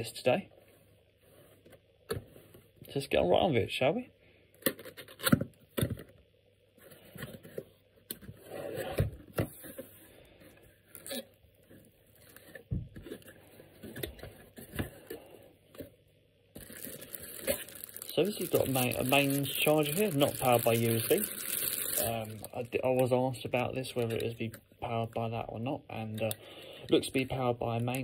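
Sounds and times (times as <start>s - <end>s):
plastic bags rustling: 16.6s - 24.4s.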